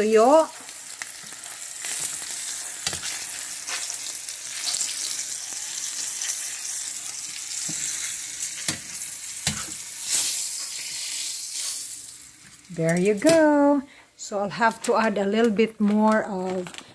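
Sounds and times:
oil sizzling in frying pan: 0.0 - 13.3
tongs clicking against pan: 8.5 - 10.2.

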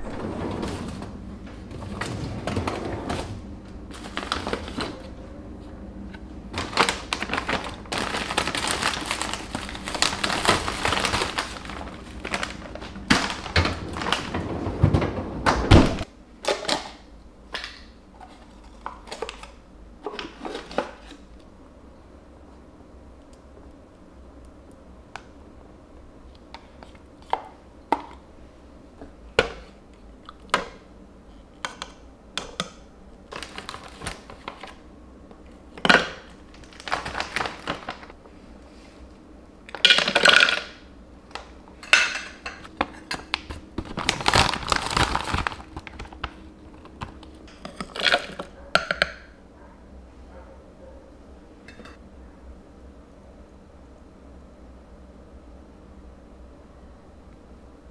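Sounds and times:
food bag rustling: 3.9 - 5.1, 6.5 - 14.5, 33.3 - 34.7, 36.2 - 38.2, 42.6 - 48.4
frozen berries clattering into jar: 6.6 - 14.4, 35.8 - 38.1, 39.7 - 40.8, 41.9 - 49.2.

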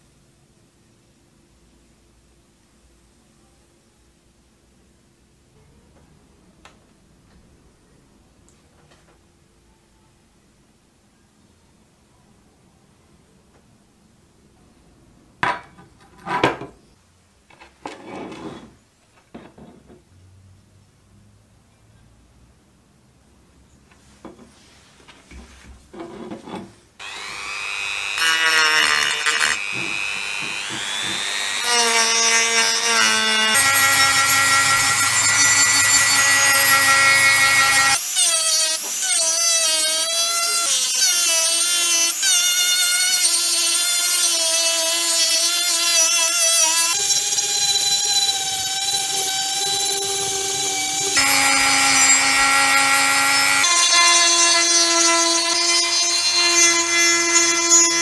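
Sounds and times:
rotary tool grinding metal: 26.0 - 58.0.

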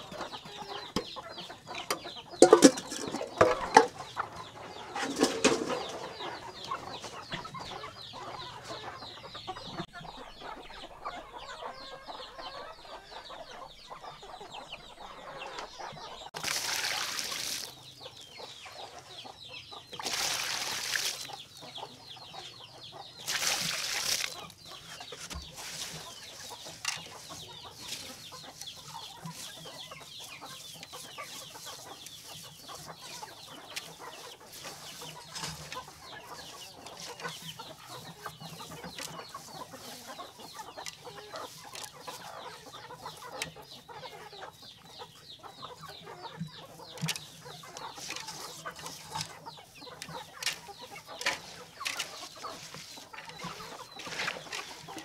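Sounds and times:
chickens clucking: 0.0 - 55.0
hands rustling through wet mash: 2.0 - 4.0, 23.2 - 43.7, 46.8 - 55.0.

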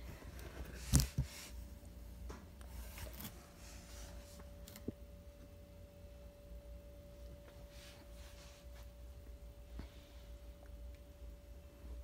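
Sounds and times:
faint steady hum: 0.0 - 12.0
soft handling rubbing: 7.3 - 9.1.

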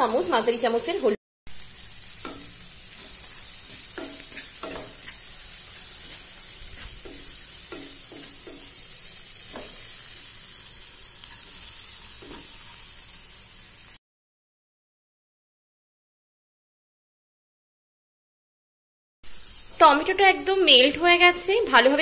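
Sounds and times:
vegetables sizzling in hot oil: 0.0 - 14.0, 19.2 - 22.0
wooden spatula scraping and knocking pan: 2.2 - 8.8, 9.5 - 9.9, 12.2 - 12.8.

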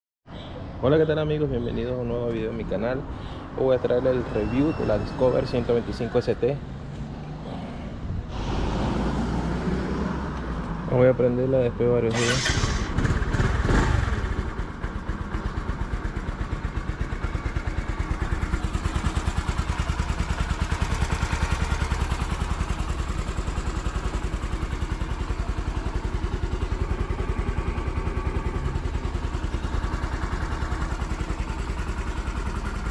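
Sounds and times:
motorcycle engine idling: 12.2 - 32.9.

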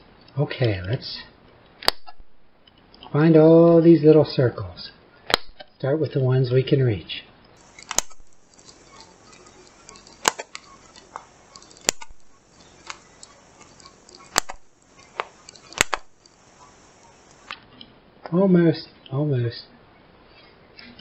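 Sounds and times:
paper punch clicking: 7.8 - 8.3, 15.2 - 16.1.

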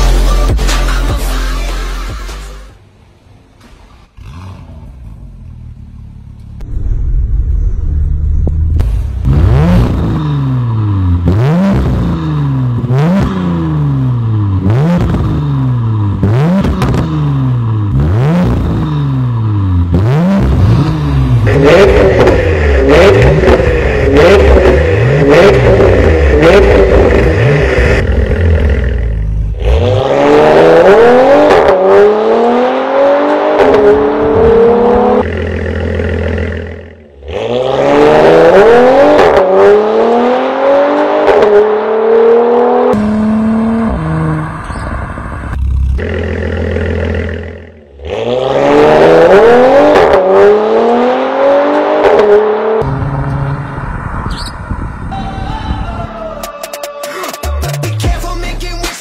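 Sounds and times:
car engine revving: 3.6 - 55.2
car accelerating hard: 8.1 - 55.0.

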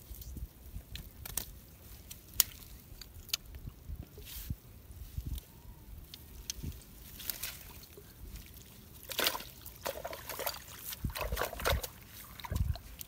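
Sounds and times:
water dribbling and splashing: 7.1 - 13.0.

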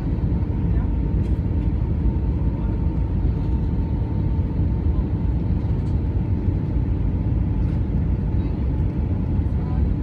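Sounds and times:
airplane cabin engine rumble: 0.0 - 10.0.

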